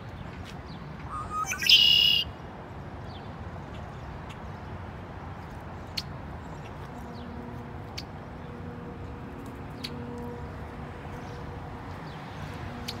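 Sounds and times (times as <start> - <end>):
blackbird check calls: 1.0 - 2.3.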